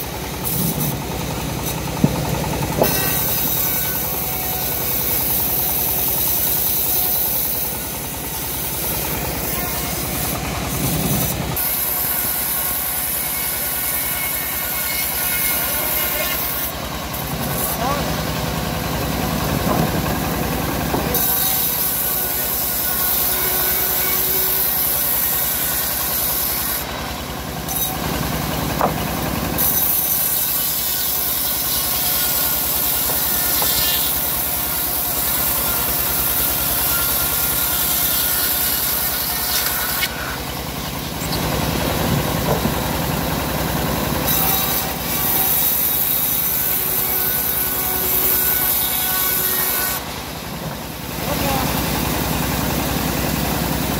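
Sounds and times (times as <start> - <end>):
sawmill engine running: 0.0 - 53.9
saw blade hissing through wood: 2.6 - 18.0, 29.6 - 40.4.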